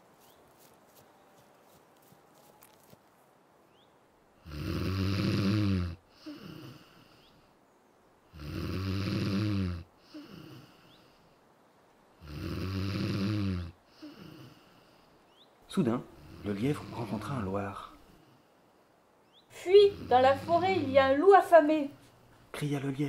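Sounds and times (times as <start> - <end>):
dormouse snoring: 4.4 - 7.3, 8.3 - 11.0, 12.2 - 14.9, 16.2 - 18.0, 19.7 - 21.2.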